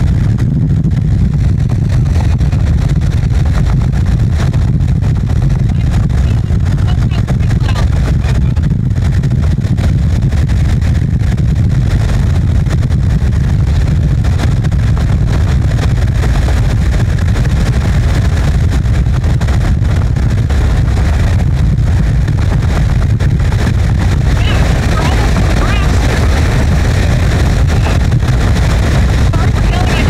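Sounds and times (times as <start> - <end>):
car road and wind rumble: 0.0 - 30.0.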